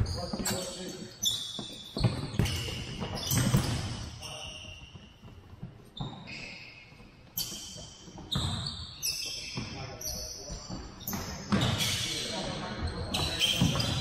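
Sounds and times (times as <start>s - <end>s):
sneakers squeaking on floor: 0.0s - 14.0s
ball bouncing on wooden floor: 1.6s - 4.0s.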